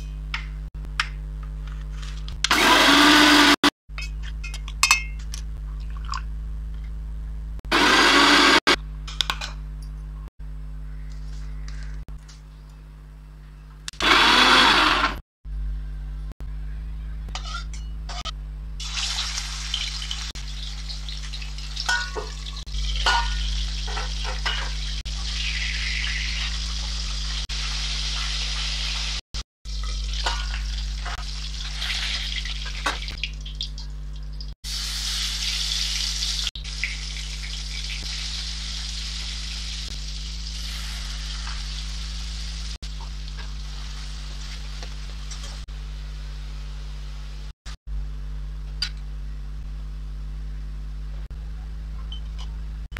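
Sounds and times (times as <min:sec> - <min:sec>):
low hum: 0:03.9 - 0:14.0, 0:15.5 - 0:29.1, 0:36.1 - 0:52.9
food sizzling in hot oil: 0:18.8 - 0:45.6.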